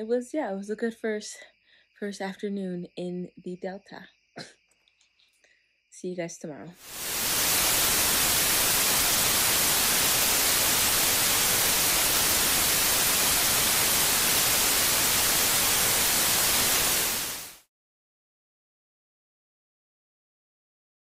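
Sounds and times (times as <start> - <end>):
television static hiss: 6.8 - 17.6.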